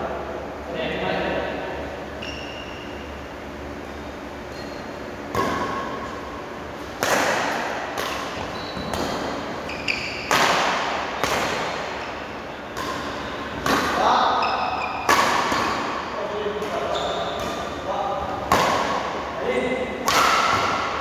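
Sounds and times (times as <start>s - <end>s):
shoe squeaks: 2.1s - 3.1s, 4.0s - 5.1s, 8.4s - 10.3s, 14.3s - 15.1s, 16.7s - 17.7s
badminton racket hitting shuttlecock: 6.9s - 9.5s, 10.1s - 12.1s, 12.7s - 17.8s, 18.4s - 19.2s, 20.0s - 21.0s.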